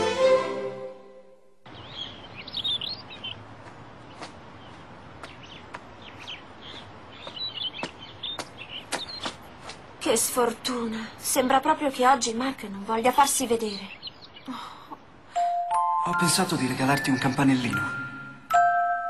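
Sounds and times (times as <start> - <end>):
string music sting: 0.0 - 1.4
birds chirping: 1.7 - 18.5.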